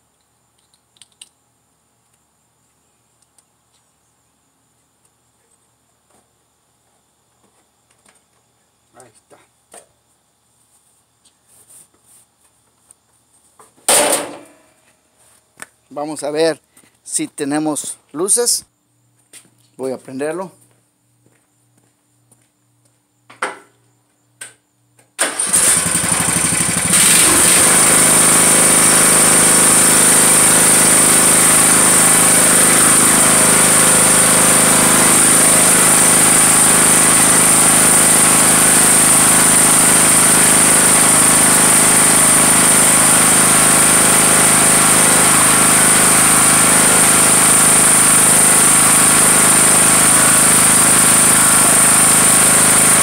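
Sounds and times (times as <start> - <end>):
lawn tractor engine running: 25.2 - 53.0.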